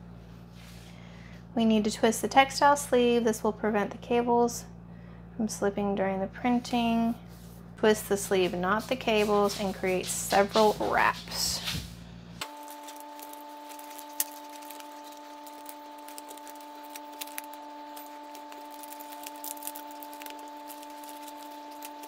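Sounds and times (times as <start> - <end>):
steady multi-tone hum: 0.0 - 22.0
cable sleeve rustling: 12.4 - 22.0.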